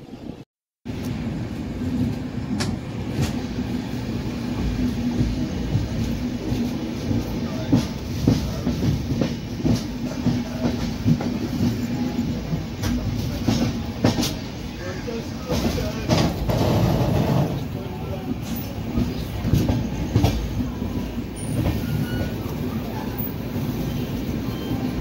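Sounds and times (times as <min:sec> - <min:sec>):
train rumbling along track: 0:00.0 - 0:25.0
wheels clacking over rail joints: 0:15.4 - 0:22.4.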